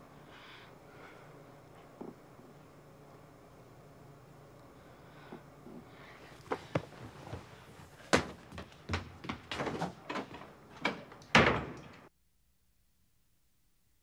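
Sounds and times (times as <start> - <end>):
door slamming: 10.8 - 12.0.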